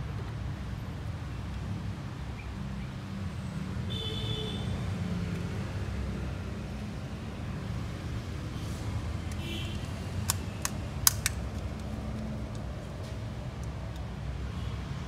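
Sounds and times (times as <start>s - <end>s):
background traffic rumble: 0.0s - 15.0s.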